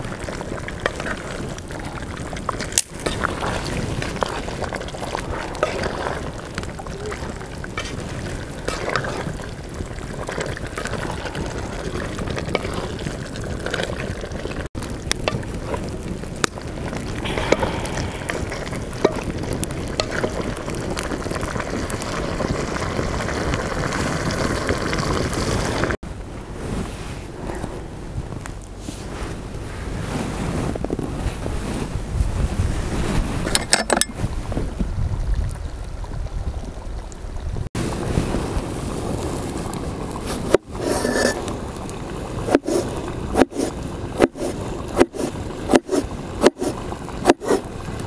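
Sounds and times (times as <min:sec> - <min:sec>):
food sizzling and bubbling in pot: 0:00.0 - 0:26.0, 0:32.8 - 0:48.0
wooden spatula scraping pot: 0:03.0 - 0:06.4, 0:07.7 - 0:09.4, 0:10.3 - 0:14.1, 0:40.4 - 0:41.5.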